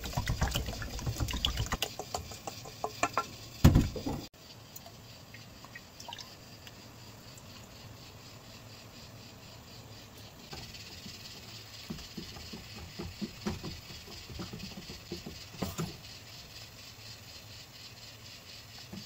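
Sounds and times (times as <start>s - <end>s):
light knocks and taps: 11.8s - 16.0s.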